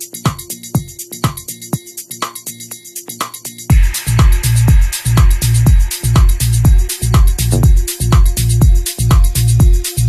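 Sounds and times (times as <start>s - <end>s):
electronic dance music: 0.0s - 10.0s
deep drum hits: 3.7s - 8.8s.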